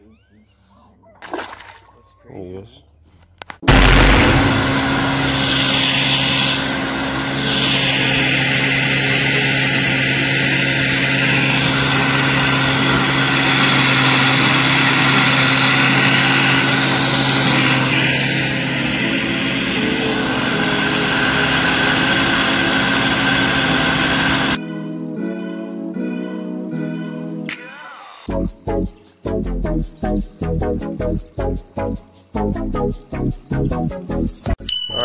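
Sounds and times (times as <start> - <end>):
outboard motor running: 3.7 - 24.6.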